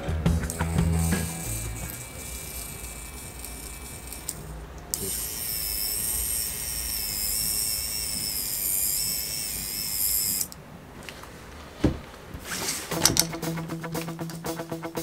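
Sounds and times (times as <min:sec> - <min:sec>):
guitar music: 0:00.0 - 0:02.2, 0:12.9 - 0:15.0
electric winch motor whining: 0:00.5 - 0:10.6.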